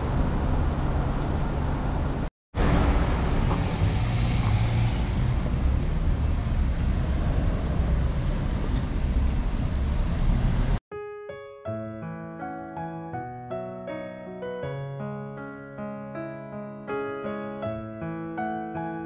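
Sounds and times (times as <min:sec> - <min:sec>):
road traffic: 0:00.0 - 0:10.8
soft piano music: 0:10.9 - 0:19.0.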